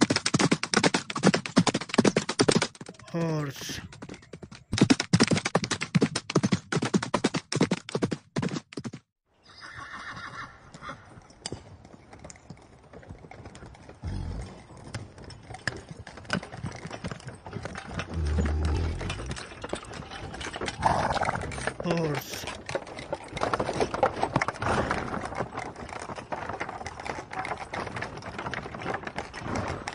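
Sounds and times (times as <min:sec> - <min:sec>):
horse neighing: 0:09.4 - 0:11.0, 0:18.0 - 0:19.6, 0:20.8 - 0:22.5
horse hoofbeats on sand: 0:10.2 - 0:21.8, 0:22.4 - 0:29.9.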